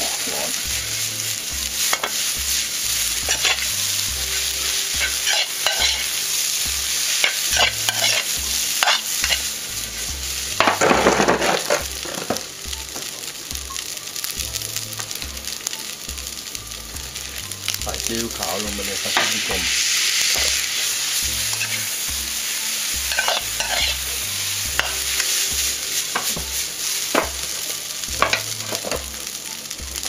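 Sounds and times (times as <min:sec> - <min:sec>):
metal spatula scraping wok: 0:00.0 - 0:06.2, 0:06.8 - 0:12.4, 0:18.9 - 0:29.0
rice sizzling in wok: 0:00.0 - 0:30.0.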